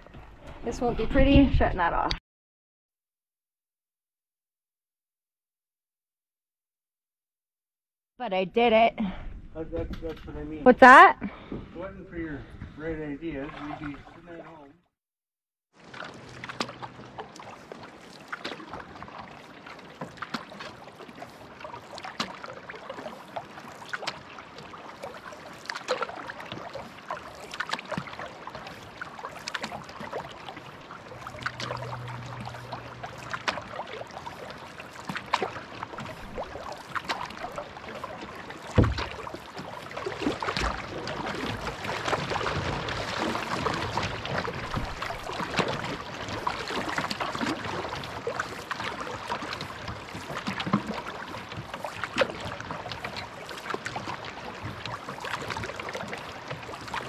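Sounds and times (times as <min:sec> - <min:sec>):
canoe paddling splashes: 0:10.7 - 0:14.8, 0:15.7 - 0:57.0.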